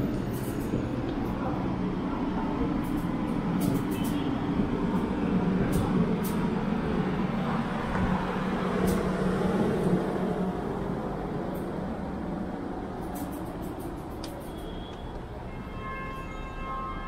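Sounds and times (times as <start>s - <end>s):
city road traffic rumble: 0.0s - 17.0s.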